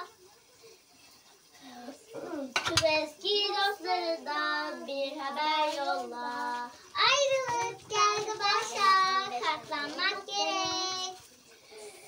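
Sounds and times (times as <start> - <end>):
girl singing: 2.2 - 11.2.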